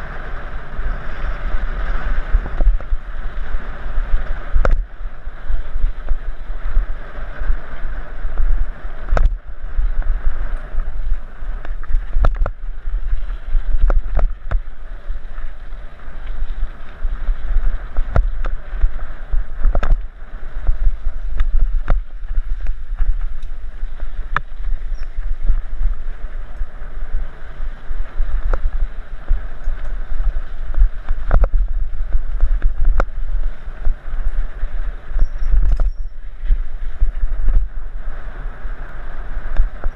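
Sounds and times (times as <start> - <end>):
low rumble: 0.0 - 39.9
wind buffeting: 0.0 - 39.9
bike knocks and rattles: 8.3 - 15.5, 16.2 - 26.6.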